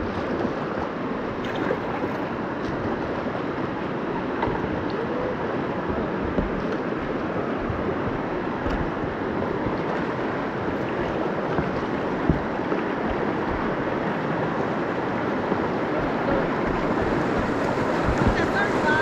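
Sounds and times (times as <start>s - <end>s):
river rapids rushing: 0.0s - 19.0s.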